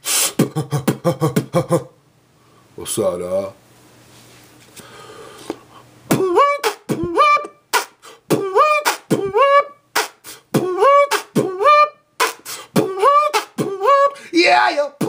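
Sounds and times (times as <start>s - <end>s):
man beatboxing: 0.0s - 1.8s, 6.1s - 15.0s.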